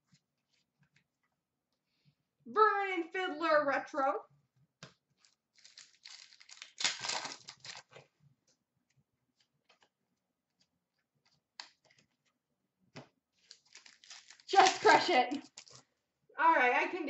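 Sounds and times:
wrapper tearing and crinkling: 0:05.2 - 0:08.0, 0:13.4 - 0:15.8
cards handled with faint clicks: 0:10.6 - 0:12.4, 0:15.3 - 0:15.8.

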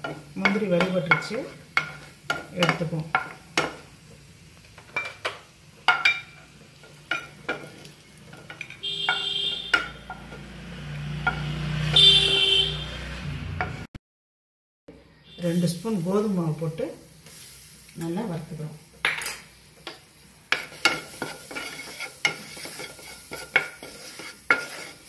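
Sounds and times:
wooden spatula scraping frying pan: 0:00.0 - 0:03.9, 0:20.5 - 0:25.0
nuts sizzling in hot fat: 0:00.0 - 0:12.2, 0:15.4 - 0:25.0.

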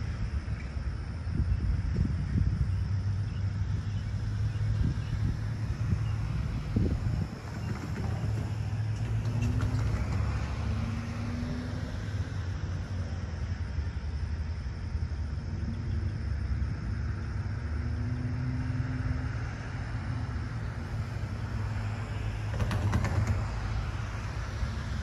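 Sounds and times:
passing vehicle engine hum: 0:00.0 - 0:25.0
road traffic rumble: 0:00.0 - 0:25.0.

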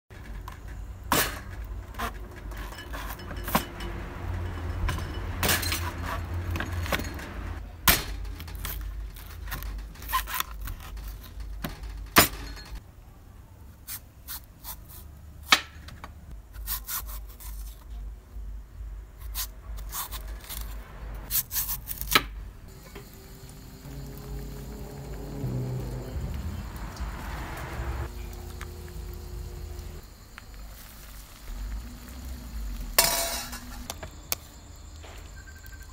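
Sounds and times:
knife scraping and rubbing: 0:16.6 - 0:17.9, 0:19.2 - 0:22.2.

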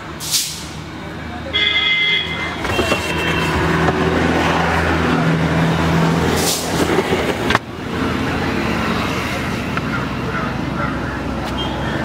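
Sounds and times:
road noise: 0:00.0 - 0:12.0
short hiss: 0:00.2 - 0:00.7.

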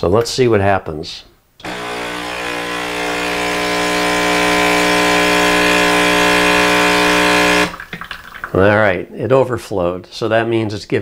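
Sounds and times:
coffee machine pump buzzing: 0:01.6 - 0:07.8
hot water hiss: 0:05.4 - 0:08.6.

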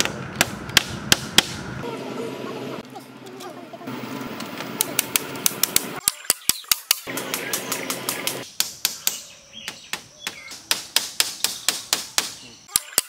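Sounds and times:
hammer tapping on bamboo: 0:00.0 - 0:01.6, 0:04.8 - 0:13.0.

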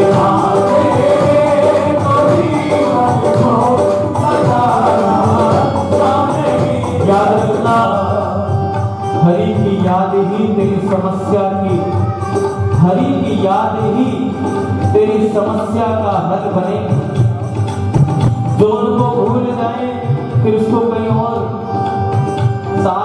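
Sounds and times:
men singing devotional song: 0:00.0 - 0:11.5
instrumental accompaniment: 0:00.0 - 0:23.0.

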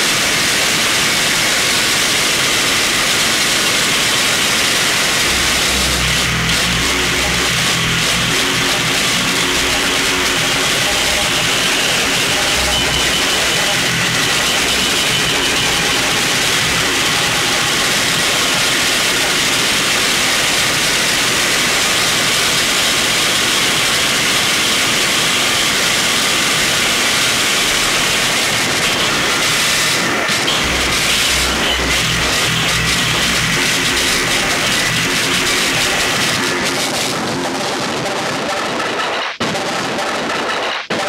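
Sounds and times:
harsh distorted noise music: 0:00.0 - 0:41.0
throbbing low pulse: 0:05.1 - 0:19.5, 0:30.3 - 0:38.1.

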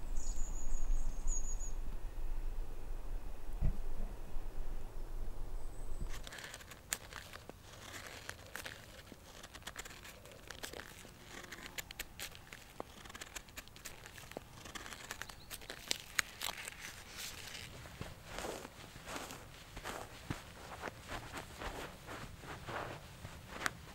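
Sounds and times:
low rumble: 0:00.0 - 0:06.2
knife scraping wood: 0:06.1 - 0:23.8.

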